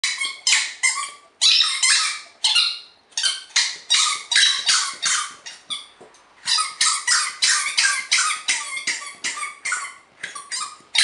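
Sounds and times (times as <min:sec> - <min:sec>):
squeaky toy squeaking: 0:00.0 - 0:11.0.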